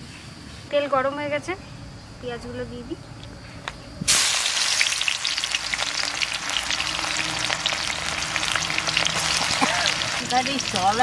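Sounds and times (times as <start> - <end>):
onions sizzling in hot oil: 4.0 - 11.0.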